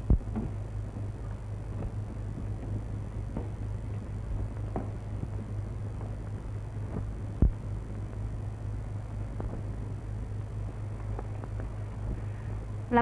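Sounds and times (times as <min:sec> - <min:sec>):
low hum: 0:00.0 - 0:13.0
film crackles and clicks: 0:09.1 - 0:12.3.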